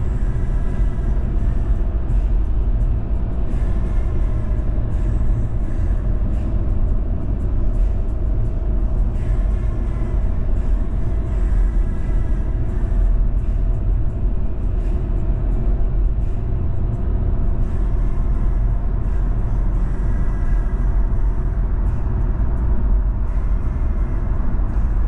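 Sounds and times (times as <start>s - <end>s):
car road and engine rumble: 0.0s - 25.0s.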